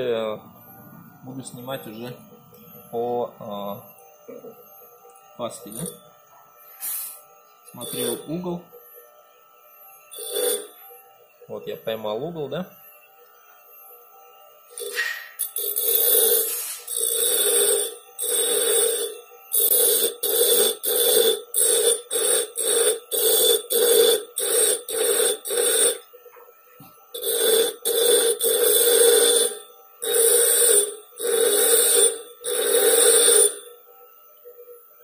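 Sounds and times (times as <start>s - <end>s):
bench grinder grinding blade: 6.9s - 8.5s, 10.1s - 11.0s, 14.8s - 26.0s, 26.8s - 33.7s.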